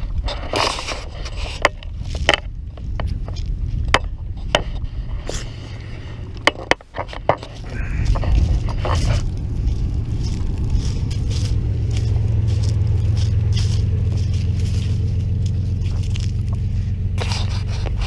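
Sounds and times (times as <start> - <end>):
steady low rumble: 0.0 - 18.0
footsteps crunching on dry leaves: 7.4 - 18.0.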